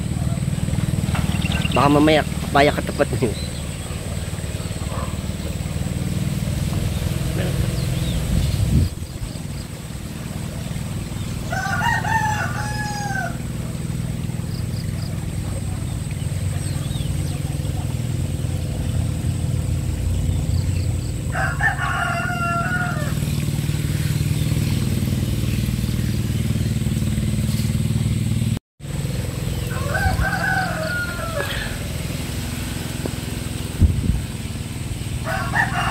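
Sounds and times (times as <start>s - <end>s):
low engine drone: 0.0s - 35.9s
rooster crowing: 11.4s - 13.6s, 21.2s - 23.3s, 29.6s - 31.9s, 35.2s - 35.9s.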